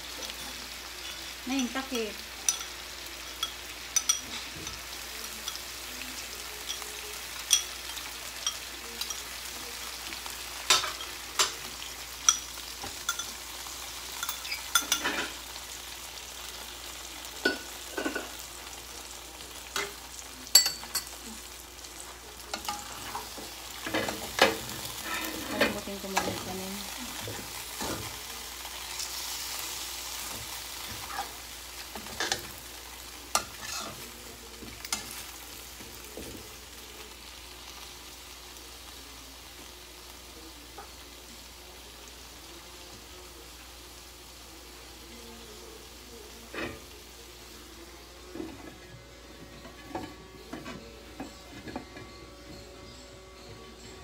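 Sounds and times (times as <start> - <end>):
beef sizzling in a wok: 0.0 - 54.0
metal spoon scraping pan: 22.6 - 26.5, 33.3 - 34.0.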